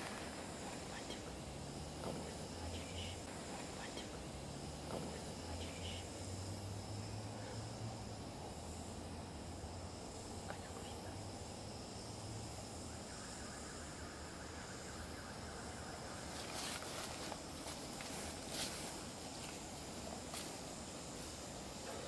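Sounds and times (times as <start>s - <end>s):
faint rustles and clicks: 16.3s - 22.0s.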